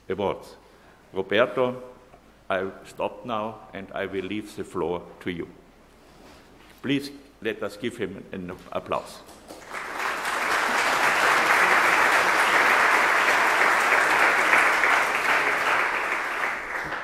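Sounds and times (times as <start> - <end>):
audience applauding: 9.3 - 17.0.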